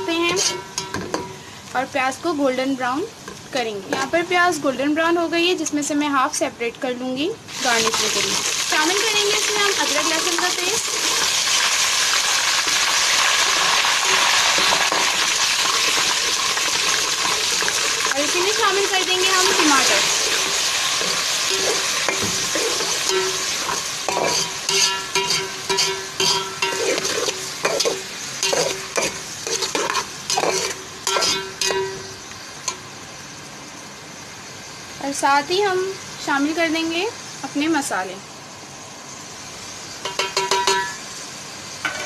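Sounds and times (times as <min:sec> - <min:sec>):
hot oil sizzling in a pot: 0:00.0 - 0:42.0
metal spoon stirring: 0:00.2 - 0:01.2, 0:15.6 - 0:32.0.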